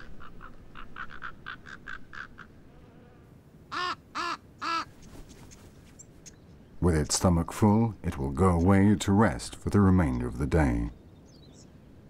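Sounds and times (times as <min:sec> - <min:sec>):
raven caws: 0:00.0 - 0:03.0, 0:03.7 - 0:05.0
ravens calling short notes: 0:03.7 - 0:05.6.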